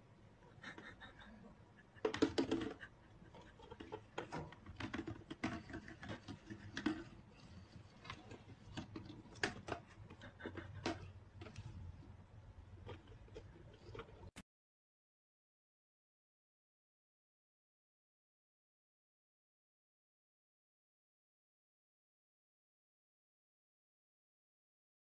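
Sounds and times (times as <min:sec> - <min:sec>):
hamster scrabbling: 0:01.8 - 0:12.1.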